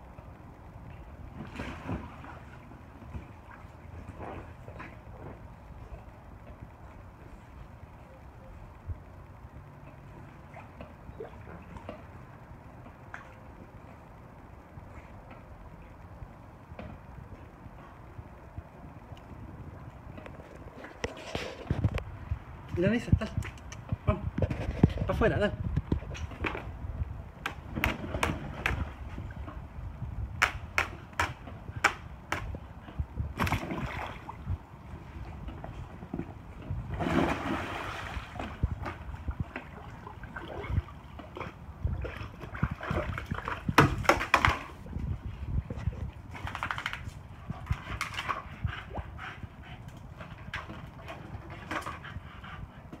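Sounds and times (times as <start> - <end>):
pool water splash: 36.9 - 41.3.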